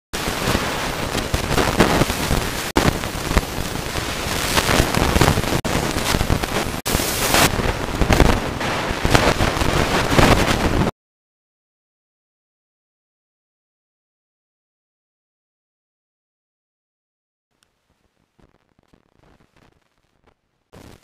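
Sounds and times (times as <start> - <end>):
wind on microphone: 0.2 - 10.9.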